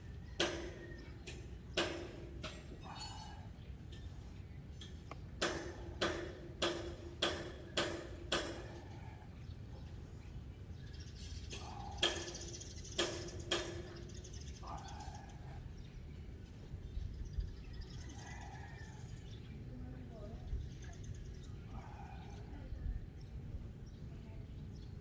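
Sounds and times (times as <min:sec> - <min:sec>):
sharp ringing knocks: 0:04.8 - 0:08.9, 0:11.6 - 0:14.4.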